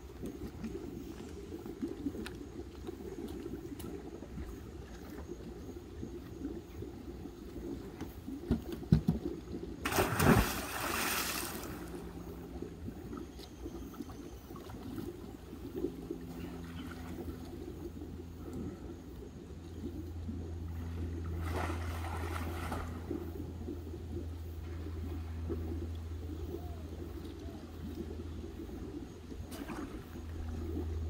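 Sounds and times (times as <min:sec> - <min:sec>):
water sloshing: 0:07.8 - 0:18.8, 0:20.6 - 0:23.9
big splash into pool: 0:09.8 - 0:11.9.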